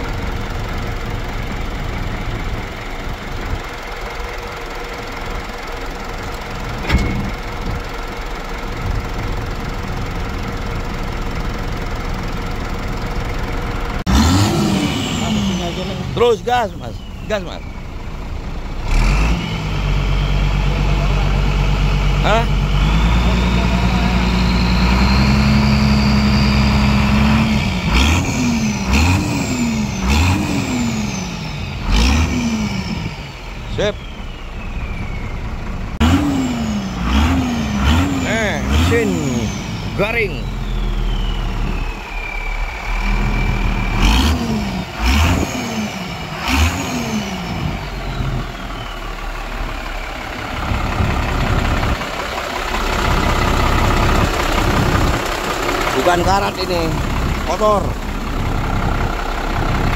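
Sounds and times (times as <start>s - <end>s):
truck diesel engine revving: 0.0s - 59.9s
high turbo whistle: 22.7s - 27.6s, 33.8s - 35.9s, 40.2s - 44.3s, 47.1s - 51.3s.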